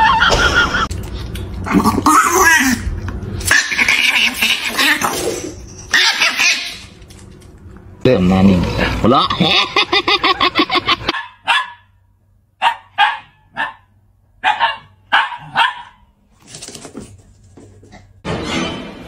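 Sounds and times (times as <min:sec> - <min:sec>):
dog barking: 0:11.1 - 0:11.9, 0:12.6 - 0:16.1.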